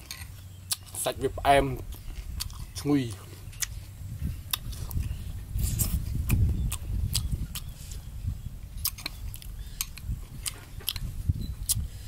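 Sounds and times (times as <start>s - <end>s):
person chewing wetly: 0.0s - 1.0s, 1.8s - 8.1s, 8.7s - 11.9s.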